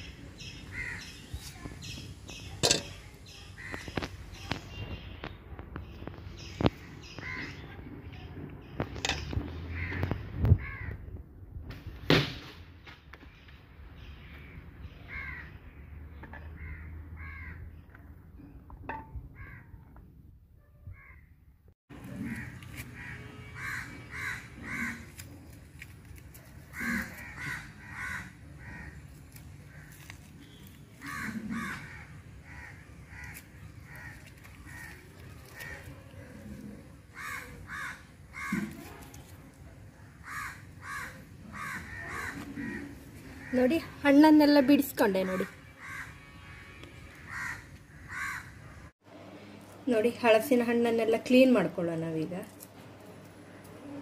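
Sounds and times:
crows cawing: 0:00.7 - 0:01.1, 0:09.7 - 0:11.0, 0:15.1 - 0:15.6, 0:16.6 - 0:17.7, 0:19.4 - 0:19.8, 0:22.2 - 0:25.2, 0:26.7 - 0:36.5, 0:37.1 - 0:39.0, 0:40.0 - 0:44.0, 0:45.2 - 0:48.9.

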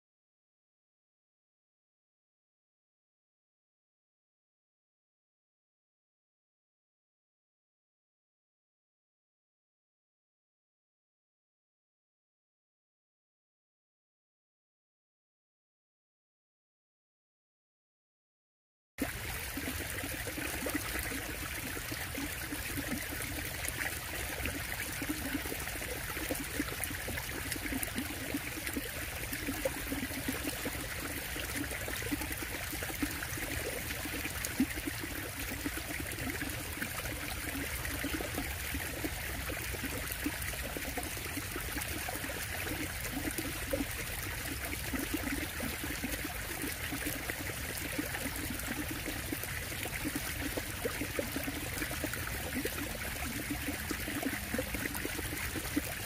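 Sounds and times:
stream water running: 0:19.0 - 0:56.0.

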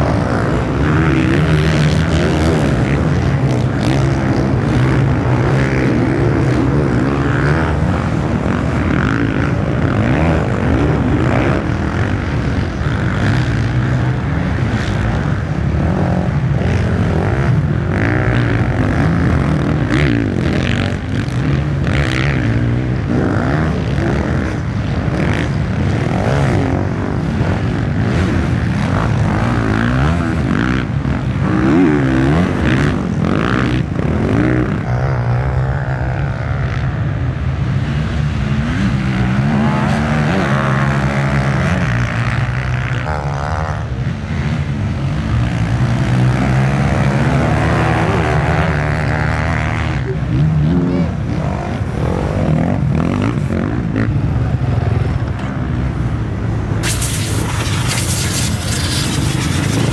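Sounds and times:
dirt bike engines revving: 0:00.0 - 0:59.9.

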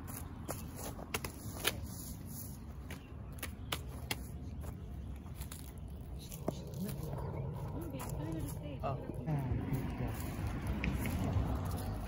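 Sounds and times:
footsteps on dry leaves: 0:03.9 - 0:12.0
steady low rumble: 0:04.3 - 0:12.0.

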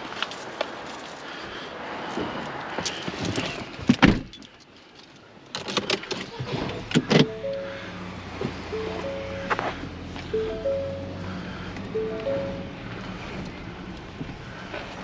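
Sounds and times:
short electronic tones: 0:07.2 - 0:08.1, 0:08.7 - 0:09.6, 0:10.3 - 0:11.3, 0:12.0 - 0:12.8
low engine hum: 0:07.2 - 0:15.0.

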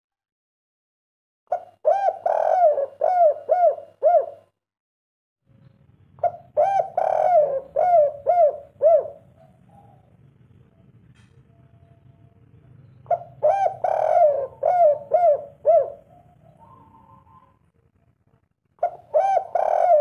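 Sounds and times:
dove cooing: 0:01.5 - 0:04.5, 0:06.2 - 0:10.7, 0:12.8 - 0:17.7, 0:18.8 - 0:20.0.

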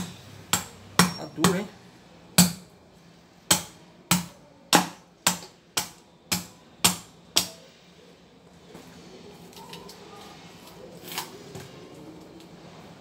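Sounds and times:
sharp strikes on coconut shell: 0:00.0 - 0:01.7, 0:02.4 - 0:02.7, 0:03.5 - 0:07.6.

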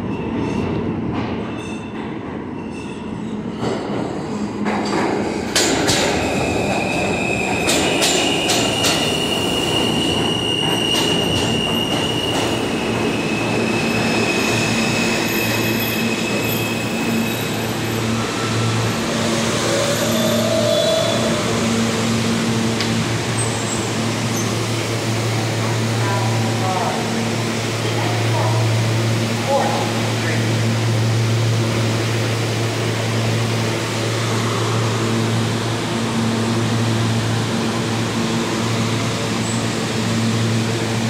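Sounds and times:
train wheels clacking over joints: 0:03.6 - 0:13.2
high-pitched wheel squeal: 0:13.2 - 0:21.6.

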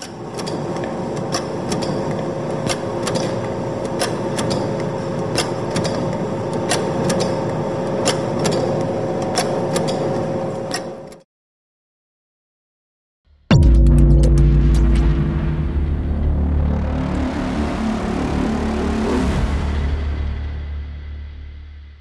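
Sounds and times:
sharp mechanism clicks: 0:00.0 - 0:11.2
machinery humming: 0:13.5 - 0:20.3.

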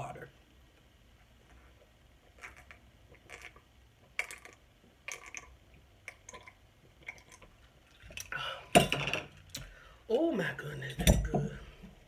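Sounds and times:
person gulping and swallowing: 0:02.3 - 0:08.8.

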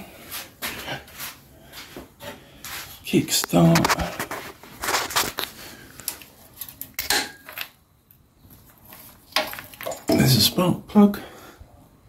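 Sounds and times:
metallic clinks and rattles: 0:09.4 - 0:10.4.

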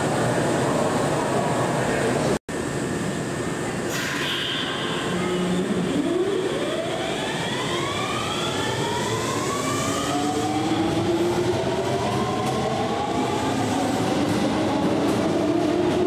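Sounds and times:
train inverter whining: 0:05.0 - 0:16.0.

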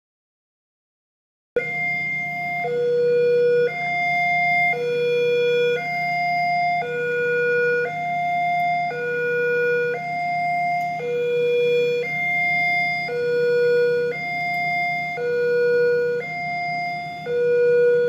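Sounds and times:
steady low hum: 0:01.6 - 0:18.0
two-tone level crossing alarm: 0:01.6 - 0:18.0.

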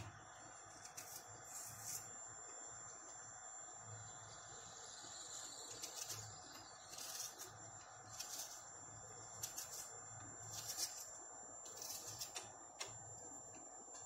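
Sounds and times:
knife slicing onion: 0:05.6 - 0:08.6, 0:09.4 - 0:11.1, 0:11.7 - 0:12.5.

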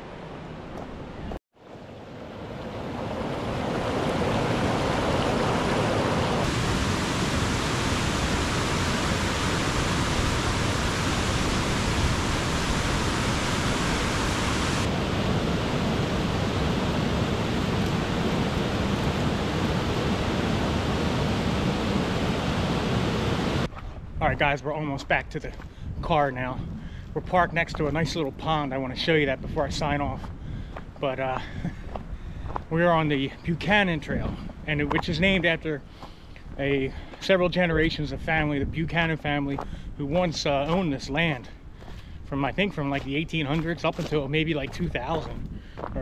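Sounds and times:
running water rushing: 0:01.6 - 0:23.7.

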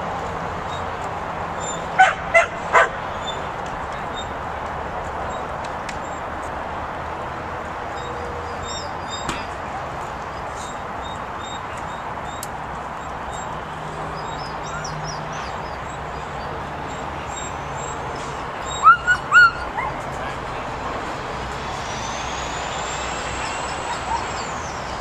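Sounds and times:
outdoor background noise: 0:00.0 - 0:25.0
puppy yelping: 0:18.7 - 0:20.0.

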